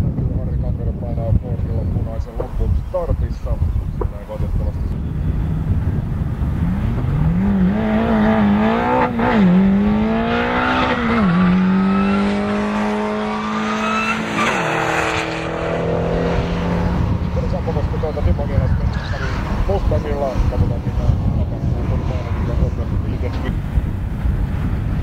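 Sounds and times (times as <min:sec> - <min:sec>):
drag racer engine accelerating: 0:04.9 - 0:24.8.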